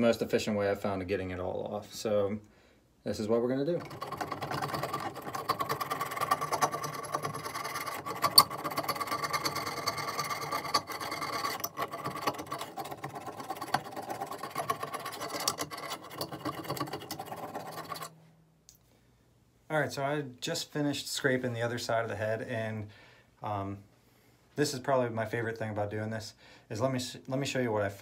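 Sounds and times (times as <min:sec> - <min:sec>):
knife scraping paint off metal: 0:03.8 - 0:18.2.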